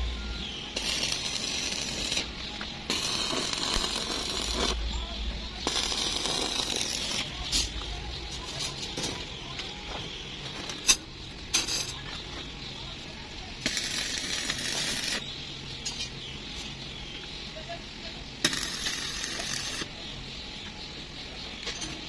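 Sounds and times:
welding arc crackling and hissing: 0.7 - 4.9, 5.5 - 8.4, 12.7 - 15.3, 18.4 - 20.0
sharp metallic clinks: 10.6 - 12.8, 13.6 - 16.7.

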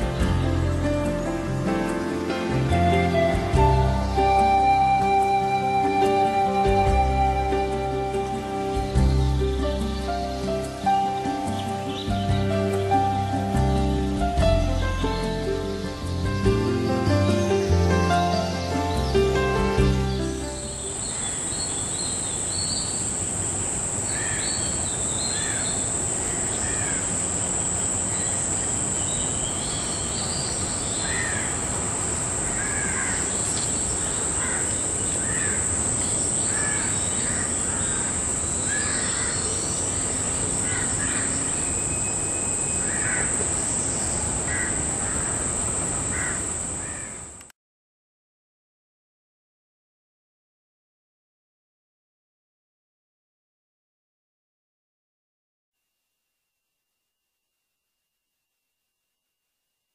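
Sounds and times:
birds calling: 14.9 - 47.4.

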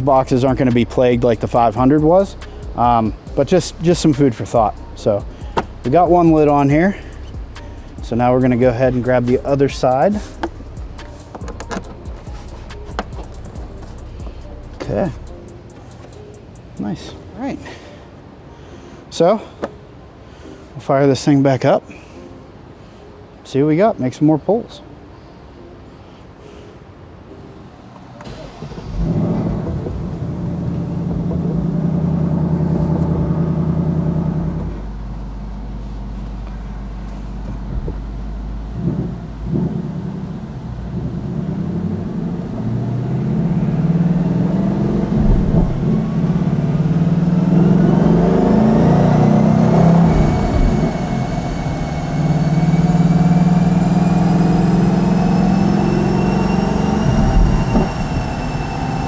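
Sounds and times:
car engine idling and revving: 0.0 - 17.1, 28.2 - 59.0
rising whine on dyno rollers: 28.2 - 59.0.

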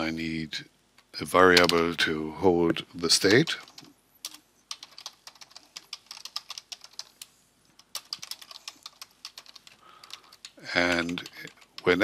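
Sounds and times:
keyboard typing: 3.6 - 12.0.

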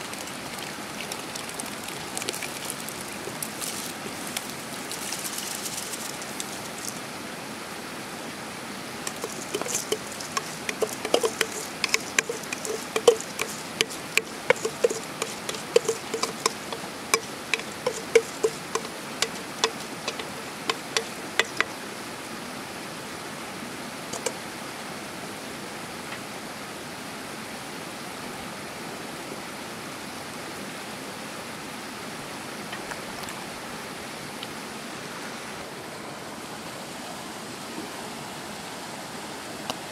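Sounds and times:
steady rushing hiss: 0.0 - 26.3
wooden spoon tapping steel bowl: 9.1 - 21.8, 24.2 - 24.4.

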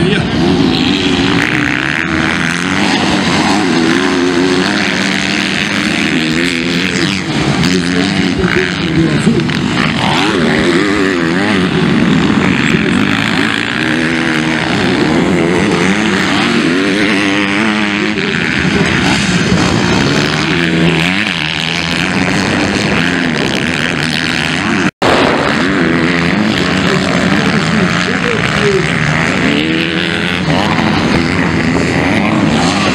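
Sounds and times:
motocross bike engines revving: 0.0 - 32.9.

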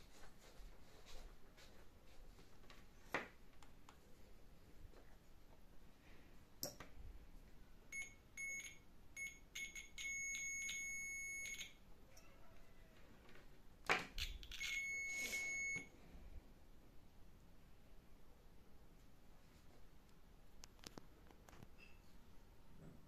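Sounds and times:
multimeter beeping: 7.9 - 11.8, 14.2 - 15.9.

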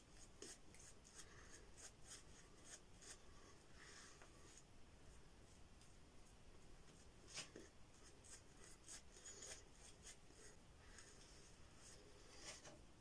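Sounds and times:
shaving brush scrubbing: 0.2 - 3.4, 8.2 - 12.5.

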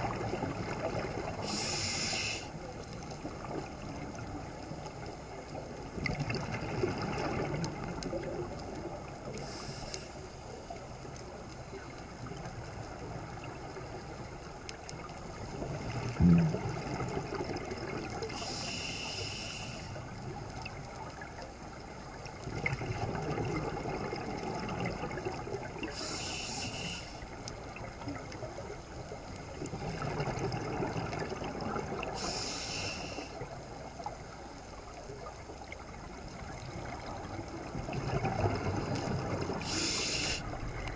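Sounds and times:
underwater bubbling exhale: 0.0 - 10.8, 14.8 - 40.9
regulator hissing inhale: 1.4 - 2.6, 9.4 - 10.3, 18.3 - 20.1, 25.9 - 27.3, 32.2 - 33.4, 39.6 - 40.6.

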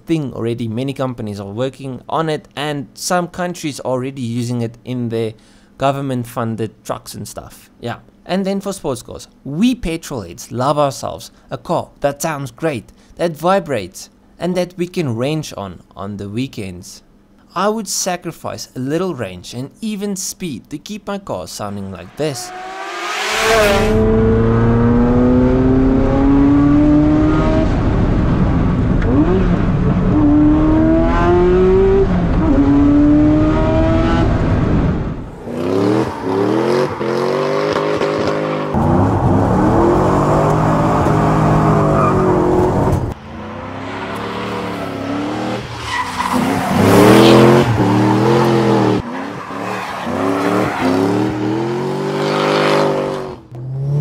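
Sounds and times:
car engine revving: 22.0 - 54.0
sports car engine accelerating: 22.3 - 45.8
tyres squealing: 44.2 - 51.0.

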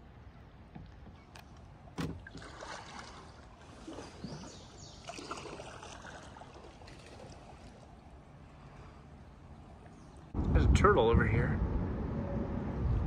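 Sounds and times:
paddle splashing in water: 1.9 - 8.9
water trickling: 2.1 - 8.5.

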